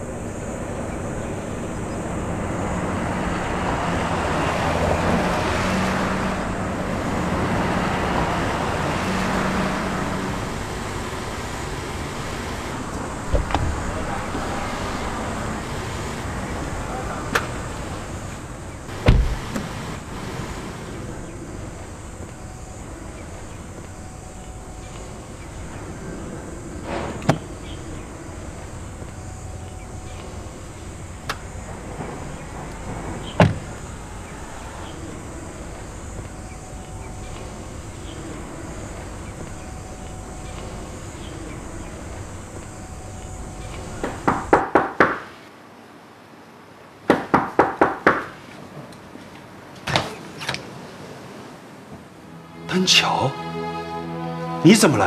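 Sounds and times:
high insect drone: 0.0s - 45.4s, 52.0s - 55.0s
sharp thuds: 18.9s - 19.7s
indoor tone: 20.9s - 44.5s, 52.1s - 55.0s.

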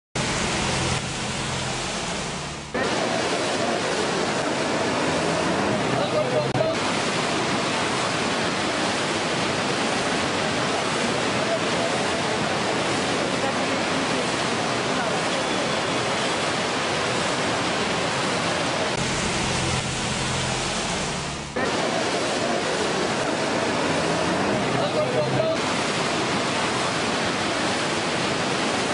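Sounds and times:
low hum: 0.2s - 3.5s, 19.0s - 21.6s
low steady hum: 0.2s - 7.0s, 18.9s - 25.8s
fast churning river water: 0.2s - 28.9s
heavy rain: 0.2s - 28.9s
rushing floodwater: 0.2s - 28.9s.

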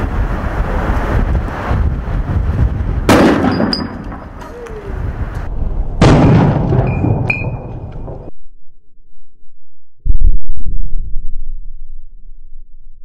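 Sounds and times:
loud explosion blast: 2.4s - 4.4s, 5.0s - 8.3s
debris cracking: 6.0s - 8.3s.

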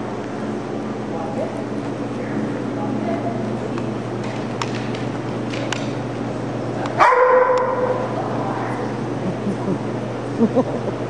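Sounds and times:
dog barking: 7.0s - 8.1s.

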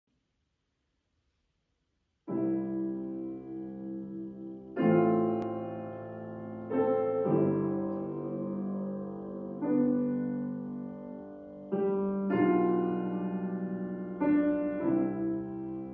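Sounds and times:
grand piano chords: 2.2s - 15.9s.

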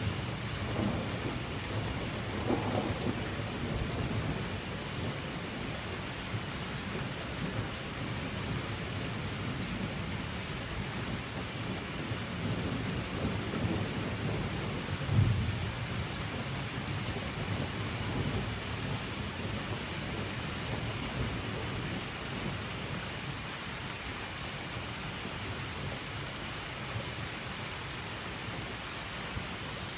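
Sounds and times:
steady rain falling: 0.0s - 29.9s
thunder rumbling: 0.1s - 5.8s
thunderclap: 0.7s - 4.4s.

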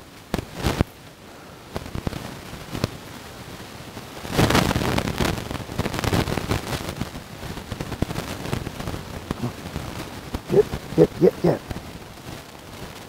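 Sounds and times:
leaves and grass rustling: 0.0s - 13.0s.

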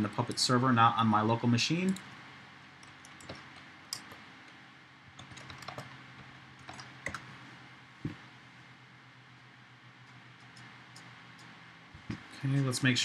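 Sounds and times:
faint low hum: 0.0s - 13.0s
keyboard keystrokes: 2.8s - 4.2s, 5.2s - 5.9s.

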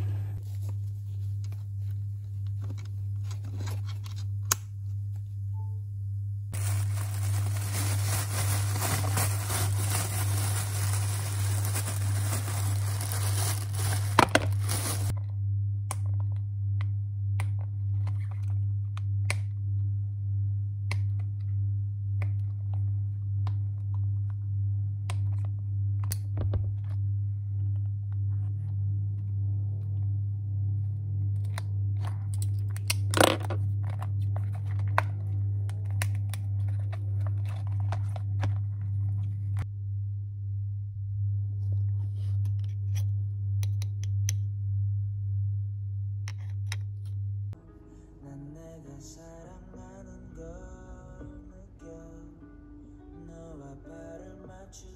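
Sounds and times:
steady low hum: 0.0s - 51.6s
cardboard packaging tearing: 6.6s - 15.1s.

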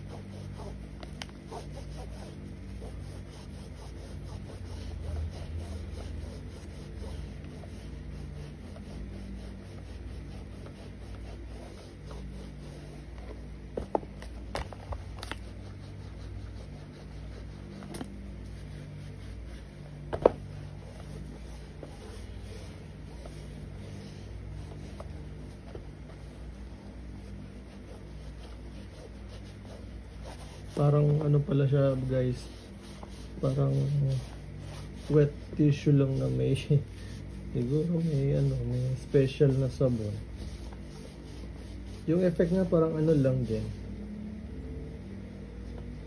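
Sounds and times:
wet wipe scrubbing a sneaker: 0.0s - 43.9s
steady low hum: 0.0s - 46.0s.

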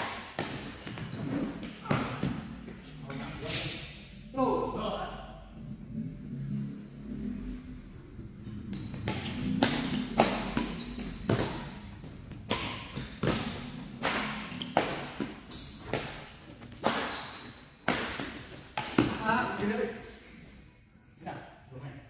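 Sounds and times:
short high shoe squeaks: 1.0s - 1.6s, 14.6s - 16.0s, 17.0s - 17.8s
rackets hitting shuttlecock: 8.9s - 19.3s.

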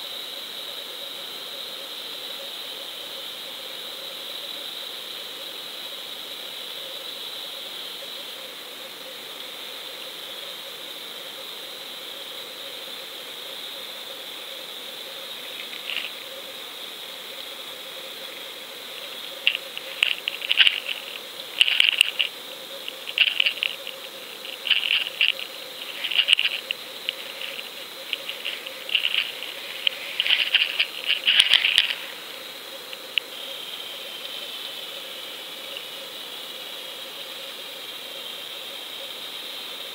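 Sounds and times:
sharp clicks and crackles: 15.4s - 16.2s, 18.9s - 32.1s.

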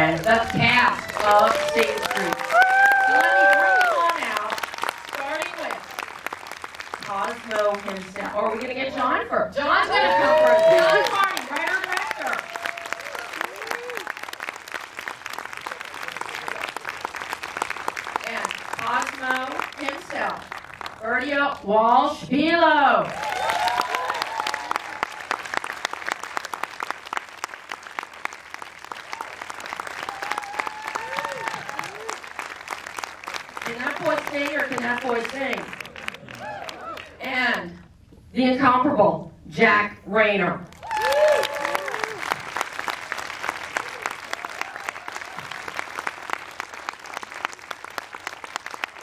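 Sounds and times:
audience applauding: 0.0s - 8.7s, 9.9s - 21.0s, 23.0s - 37.2s, 40.7s - 49.0s.

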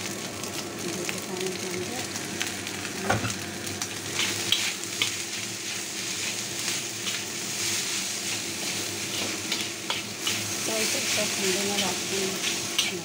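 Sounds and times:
rice sizzling in a wok: 0.0s - 13.0s
metal spatula scraping wok: 4.1s - 13.0s.

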